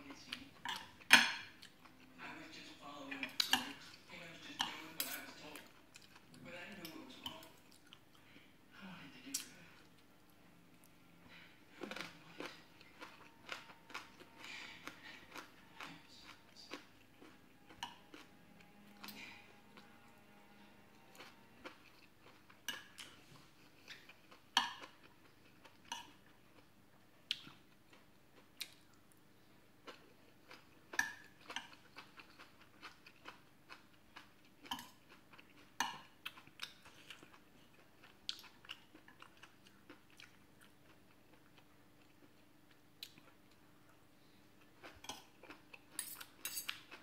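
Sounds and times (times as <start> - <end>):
person chewing food: 0.0 - 2.2, 4.6 - 8.4, 9.4 - 47.0
cutlery clinking on a plate: 46.0 - 46.9.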